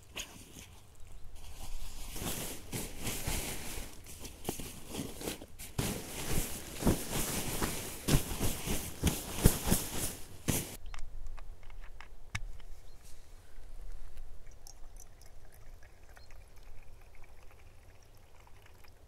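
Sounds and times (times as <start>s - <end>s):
camping gear rustling and crinkling: 0.0s - 10.8s.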